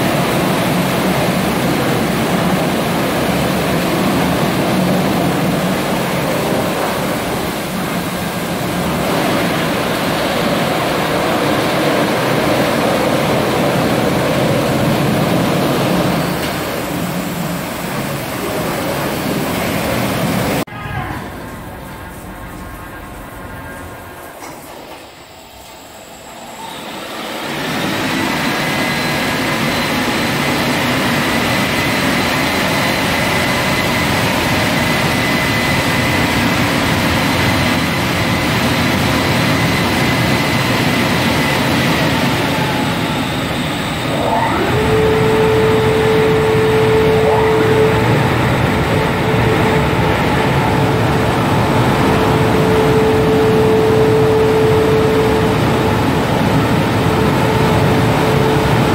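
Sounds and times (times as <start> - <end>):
car wash blowers rushing: 0.0 - 58.9
low tone sliding up: 43.7 - 58.9.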